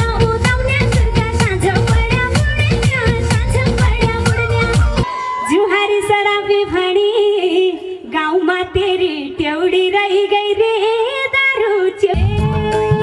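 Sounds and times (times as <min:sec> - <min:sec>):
backing music with low beat: 0:00.0 - 0:05.0
woman singing into a microphone: 0:00.0 - 0:13.0.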